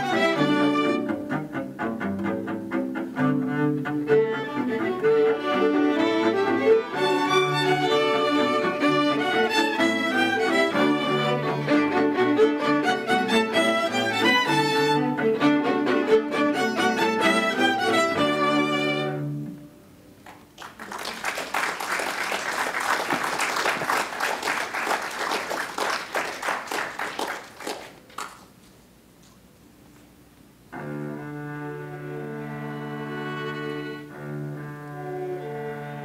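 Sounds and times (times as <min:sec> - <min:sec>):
string orchestra playing: 0:00.0 - 0:19.8, 0:30.7 - 0:36.0
applause: 0:20.2 - 0:28.6.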